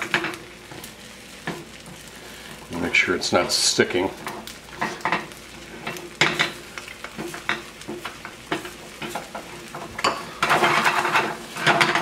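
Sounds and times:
eggs frying in a pan: 0.0 - 12.0
spatula scraping a pan: 4.2 - 12.0.

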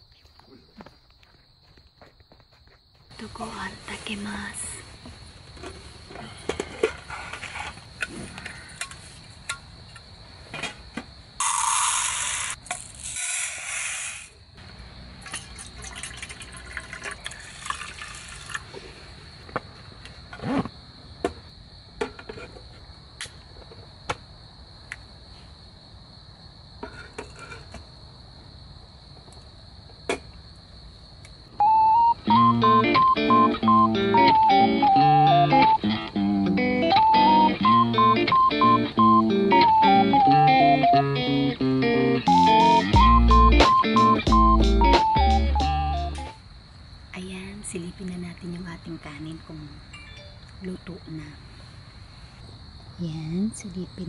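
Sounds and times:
crickets chirring: 0.0 - 54.0
water pouring over rice: 15.2 - 18.7.

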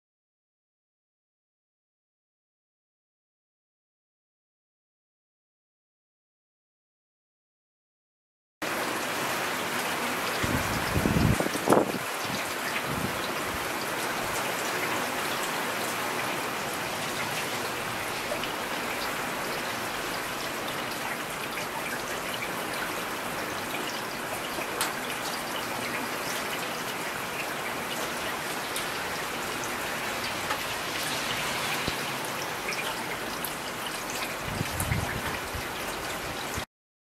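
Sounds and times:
heavy rain falling: 8.6 - 36.7.

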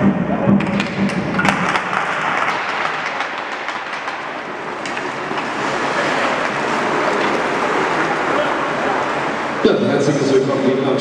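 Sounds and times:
crowd applause and cheering: 0.0 - 10.3
sharp knocks: 0.5 - 8.1.

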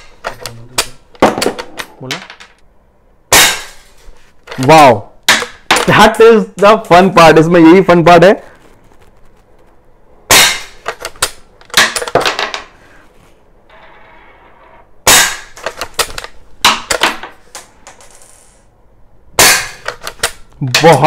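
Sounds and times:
air rifle shots: 10.3 - 12.1, 19.4 - 20.4.

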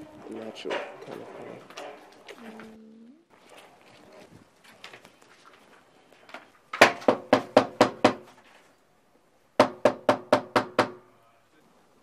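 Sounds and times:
knocking on wooden door: 6.8 - 8.2, 9.6 - 11.0.

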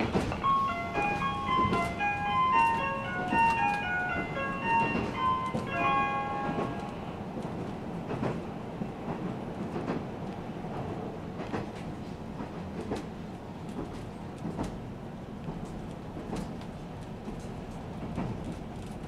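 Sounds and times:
train running noise: 0.0 - 19.0
electronic announcement chime: 0.4 - 6.8.

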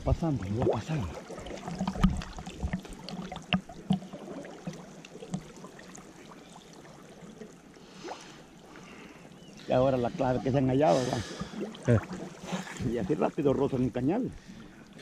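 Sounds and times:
water sloshing: 0.0 - 15.0
water splashing and dripping: 0.0 - 15.0.

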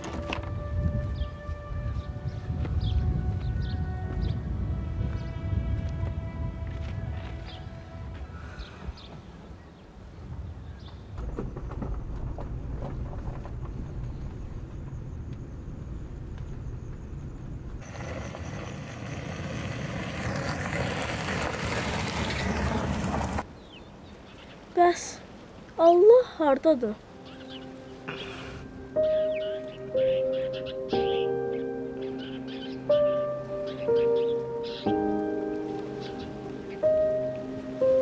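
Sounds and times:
slow background music chords: 0.0 - 8.7, 27.0 - 38.0
car driving on gravel: 11.2 - 23.5.

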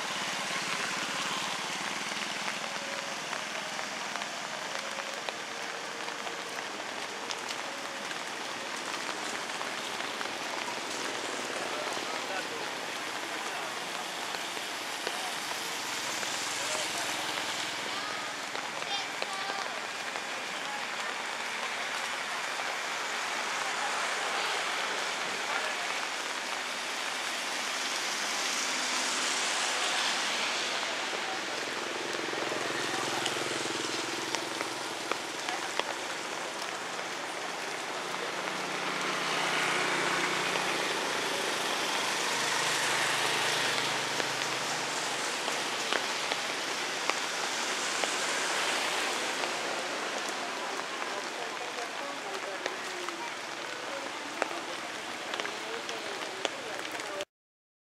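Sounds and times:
sharp drips: 0.0 - 57.2
rain pattering on pavement: 0.0 - 57.3
passing vehicle engine hum: 36.8 - 51.0.

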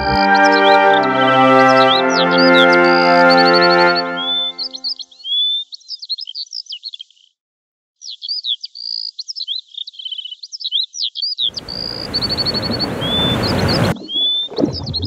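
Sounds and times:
birds chirping and trilling: 0.0 - 7.4, 8.0 - 15.0
loud steady rushing noise: 11.5 - 14.0.

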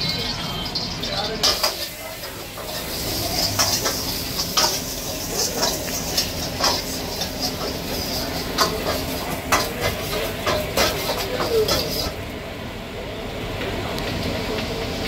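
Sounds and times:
food frying: 0.0 - 12.5
ladle clinking in a wok: 0.6 - 12.1
gas burner rushing: 0.6 - 15.0.

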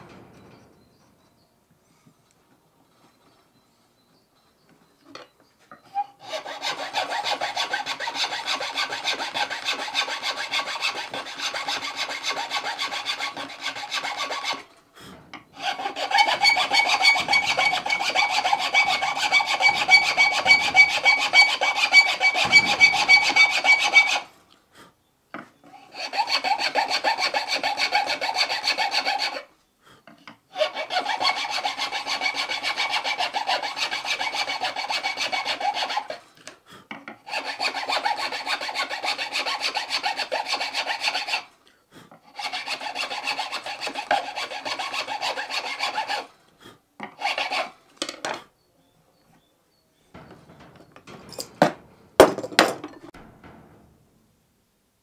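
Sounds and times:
round file rasping in wood: 6.2 - 14.7, 15.5 - 24.3, 25.9 - 29.5, 30.5 - 36.2, 37.0 - 41.5, 42.2 - 46.3, 47.0 - 48.4.

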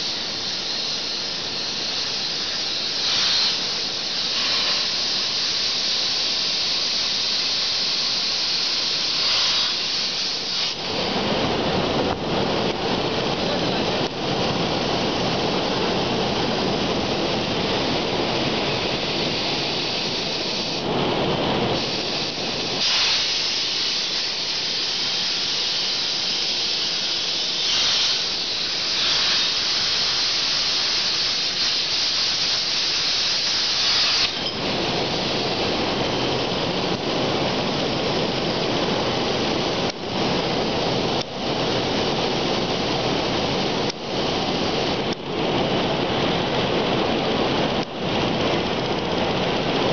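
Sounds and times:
plasma torch hissing: 0.0 - 36.9.

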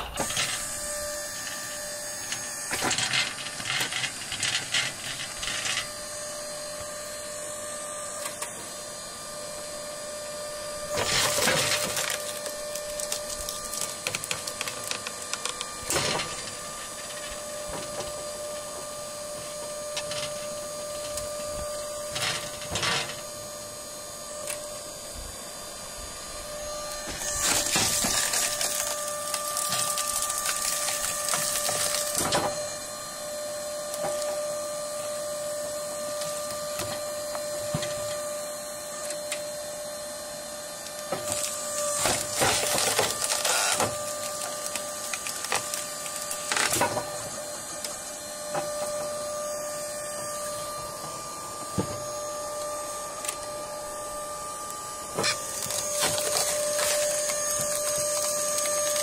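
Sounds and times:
hydraulic log splitter whine: 0.0 - 59.0
wood cracking and splintering: 10.9 - 18.2, 27.0 - 32.6, 41.2 - 47.2, 55.2 - 59.0.

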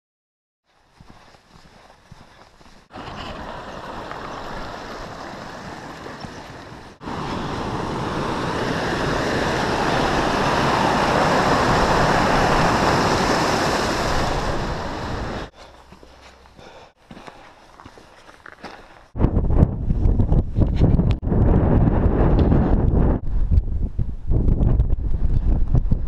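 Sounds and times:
stream cascading over boulders: 2.9 - 15.5
steady rushing noise: 3.6 - 15.5.

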